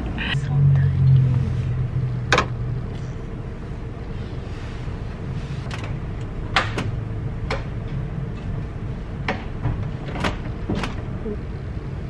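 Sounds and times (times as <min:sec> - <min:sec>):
low rumble: 0:00.0 - 0:09.2.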